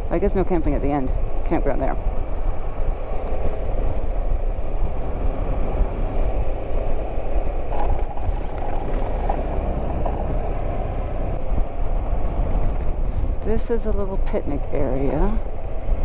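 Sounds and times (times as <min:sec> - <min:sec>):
wind buffeting microphone: 0:00.0 - 0:16.0
motorcycle engine running: 0:05.0 - 0:11.6.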